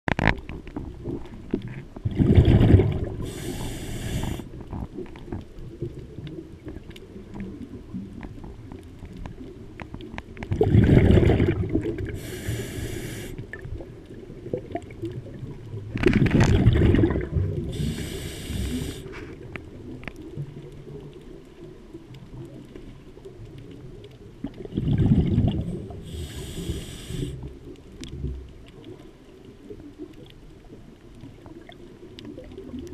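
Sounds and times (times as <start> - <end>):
exhaled bubbles underwater: 0.4 - 32.9
regulator inhale hiss: 3.2 - 4.6, 12.1 - 13.5, 17.7 - 19.4, 26.0 - 27.5.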